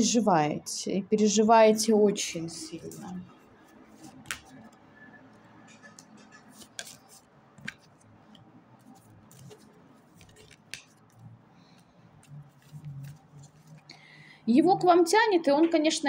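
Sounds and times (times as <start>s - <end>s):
cards clicking and snapping: 4.2s - 4.6s, 6.0s - 8.0s, 9.3s - 11.8s.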